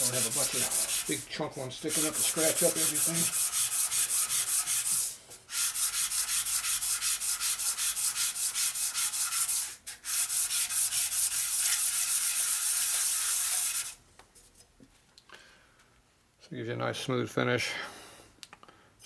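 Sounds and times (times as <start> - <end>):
metal part rubbed on sandpaper: 0.0 - 14.0.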